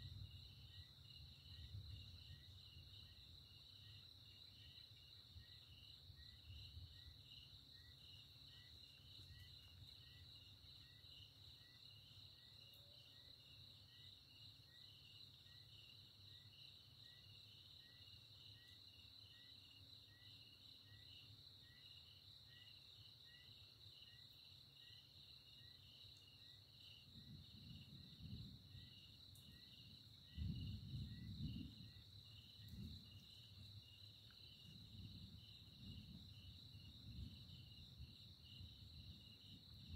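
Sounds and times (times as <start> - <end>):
crickets chirping: 0.0 - 39.9
distant thunder rumbling: 29.6 - 33.2.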